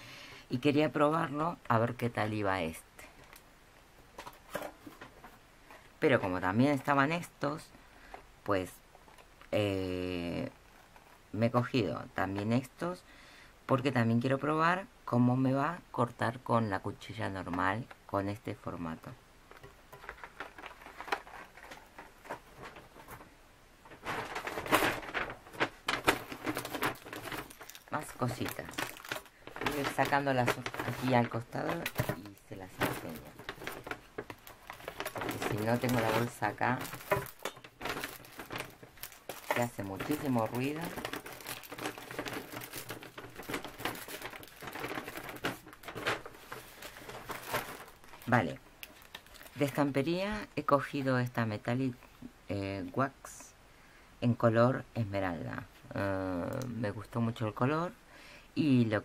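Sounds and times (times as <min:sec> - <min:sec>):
plastic bag rustling: 0:02.0 - 0:07.3, 0:19.4 - 0:51.4.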